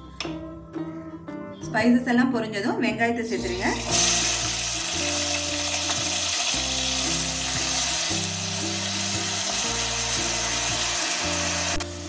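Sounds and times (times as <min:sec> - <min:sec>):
music with low sustained notes: 0:00.0 - 0:12.0
onion paste sizzling in oil: 0:03.5 - 0:12.0.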